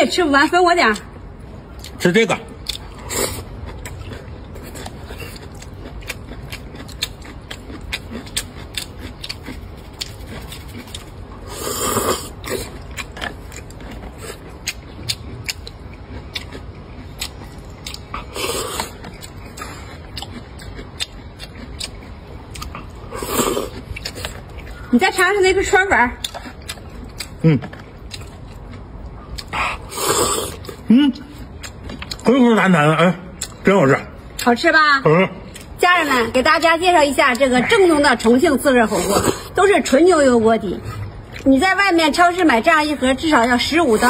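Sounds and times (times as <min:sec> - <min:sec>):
person chewing food: 0:01.0 - 0:25.6, 0:26.2 - 0:32.5, 0:33.3 - 0:34.5, 0:35.4 - 0:35.8, 0:40.8 - 0:41.5.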